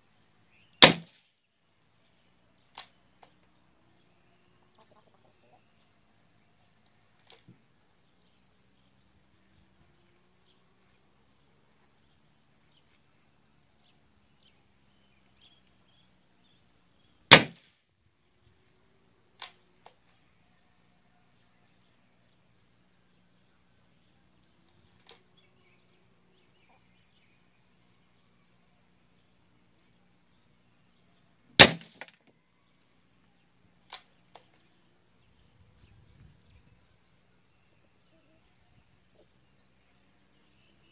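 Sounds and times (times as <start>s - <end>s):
air rifle shot: 0.8s - 1.2s, 17.3s - 17.7s, 31.6s - 32.2s
pellet hitting paper target: 31.6s - 32.2s.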